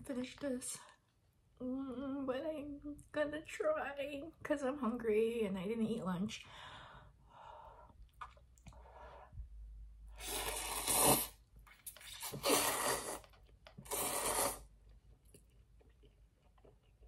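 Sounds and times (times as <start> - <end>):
person slurping noodles: 10.1 - 14.7
quiet chewing: 11.6 - 17.0.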